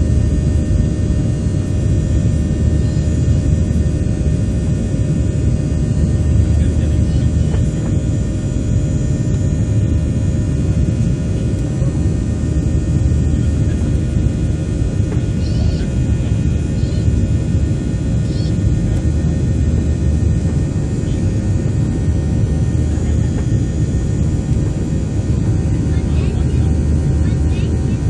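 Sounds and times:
airplane cabin engine rumble: 0.0s - 28.0s
steady hum tone: 0.0s - 28.0s.

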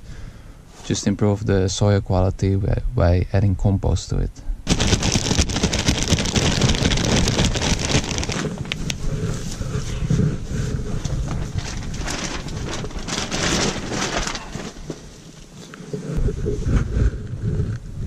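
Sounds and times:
plastic sack crackling: 4.7s - 9.0s, 11.0s - 15.6s.

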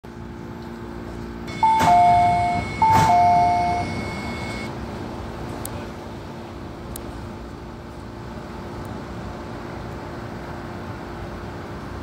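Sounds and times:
train car low hum: 0.0s - 12.0s
two-note electronic chime: 1.5s - 4.7s.

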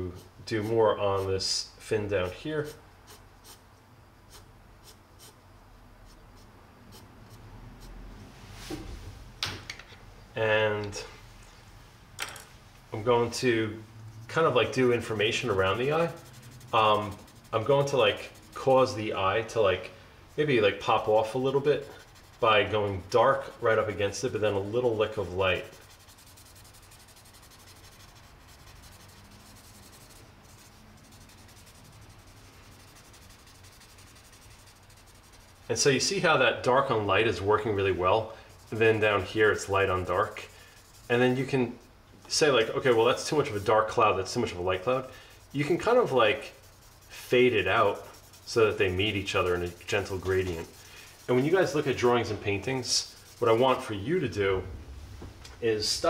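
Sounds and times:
pencil scratching on paper: 2.6s - 3.6s, 4.3s - 5.4s, 6.1s - 8.0s, 14.3s - 19.0s, 20.4s - 36.0s, 37.2s - 54.0s.

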